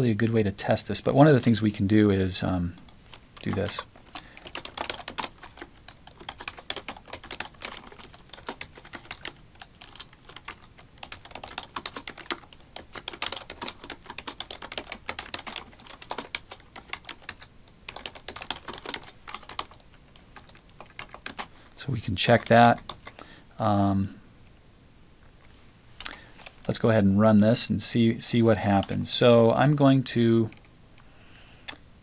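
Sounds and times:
computer keyboard typing: 2.8s - 21.6s, 22.3s - 23.2s.

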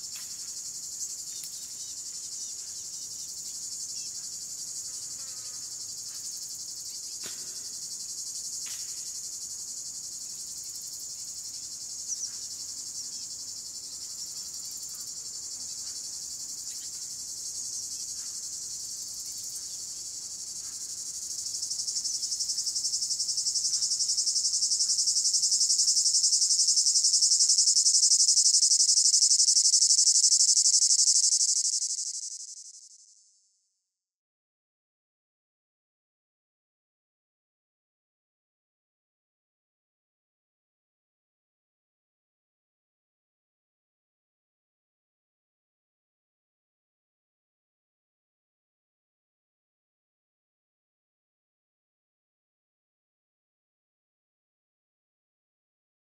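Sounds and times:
faint ticks: 1.3s - 1.6s
high dense chirring: 26.8s - 33.0s.

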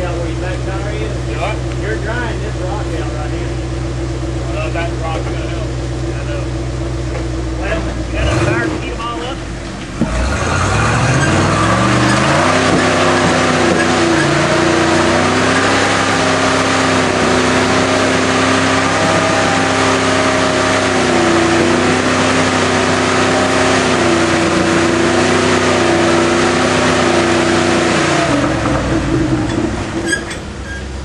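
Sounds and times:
engine at high revs under load: 7.7s - 9.1s, 9.9s - 30.1s.

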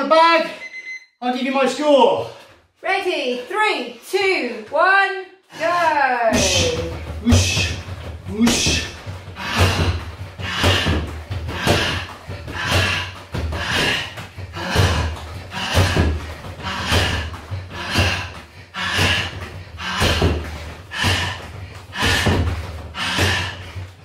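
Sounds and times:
kicks thudding on punch bag: 6.3s - 21.4s.

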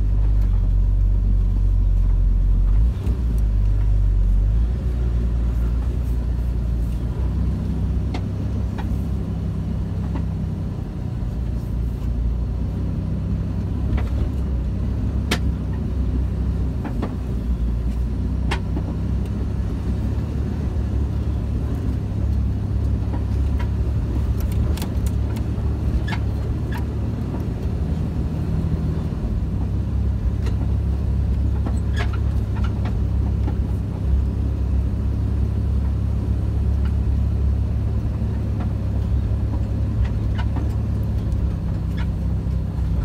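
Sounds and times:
vehicle engine and road drone: 0.0s - 43.0s.

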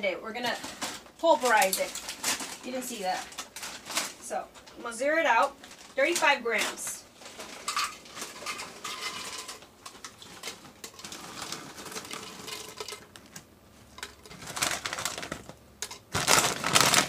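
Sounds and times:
plastic bag rustling: 0.3s - 4.8s, 5.6s - 17.0s
crunchy pieces dropping into cup: 7.2s - 17.0s.

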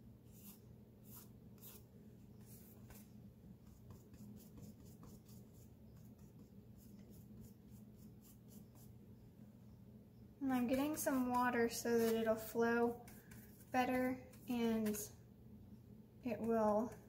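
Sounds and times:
low steady hum: 0.0s - 17.0s
paintbrush scratching on canvas: 0.3s - 9.0s, 10.7s - 15.0s.

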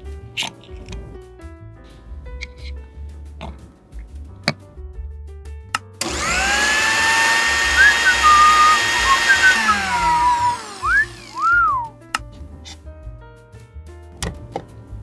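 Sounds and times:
blender motor whine: 6.0s - 11.9s
short whistle-like tones: 7.6s - 12.0s.

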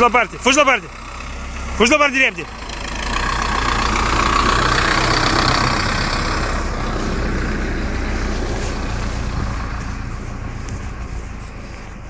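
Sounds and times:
tractor engine hum: 0.0s - 12.0s.

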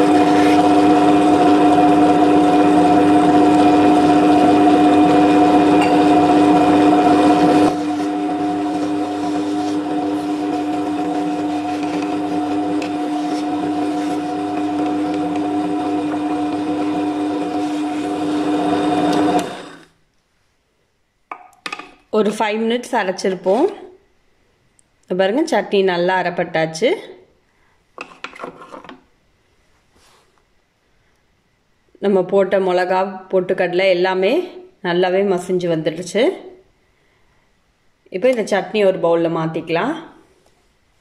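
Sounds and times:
wet grinder motor humming: 0.0s - 19.9s.

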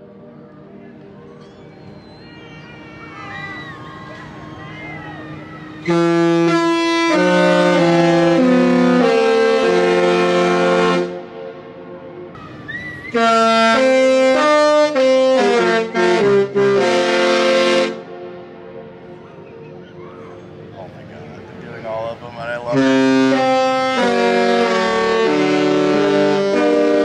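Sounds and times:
ship's musical horn playing: 4.0s - 19.0s, 22.4s - 27.0s.

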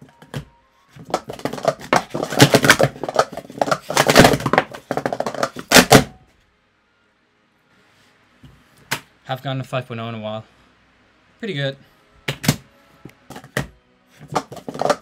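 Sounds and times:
plastic cups clacking: 1.0s - 6.1s, 13.3s - 15.0s.

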